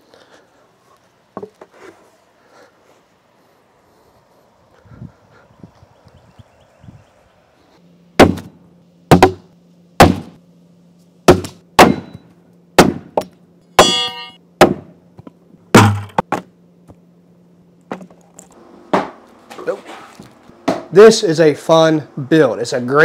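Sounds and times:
axes striking wooden target: 8.2s - 10.4s, 11.3s - 12.2s, 12.8s - 15.0s, 15.7s - 16.5s, 18.9s - 19.7s, 20.6s - 20.9s
metallic ring: 13.8s - 14.4s.

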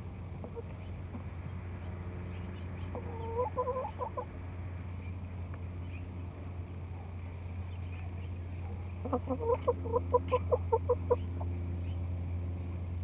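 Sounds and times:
chicken clucking: 2.9s - 4.3s, 9.0s - 11.5s.

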